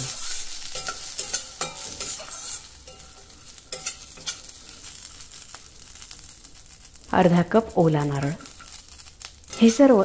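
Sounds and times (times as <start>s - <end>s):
spatula scraping metal pan: 0.0s - 4.6s, 9.5s - 10.0s
oil sizzling: 0.0s - 10.0s.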